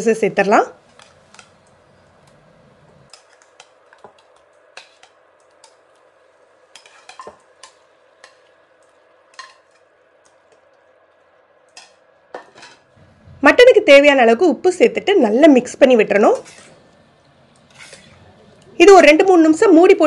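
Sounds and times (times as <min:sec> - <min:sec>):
faint sizzle in a pan: 0:00.0 - 0:20.0.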